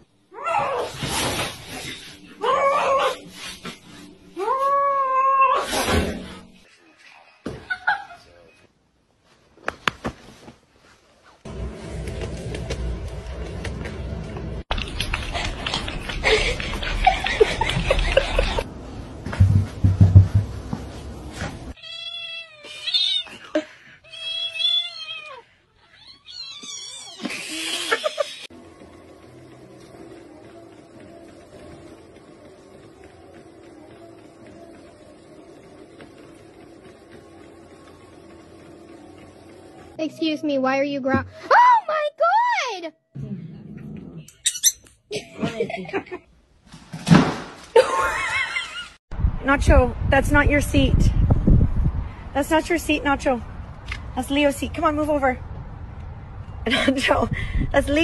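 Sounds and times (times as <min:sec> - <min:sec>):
rustling noise: 0:09.1 - 0:21.8
thumps: 0:19.2 - 0:20.9.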